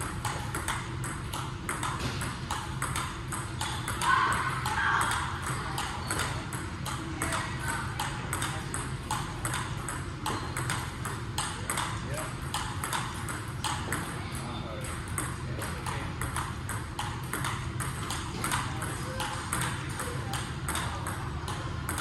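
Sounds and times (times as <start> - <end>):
table tennis ball ticking: 0.0 - 22.0.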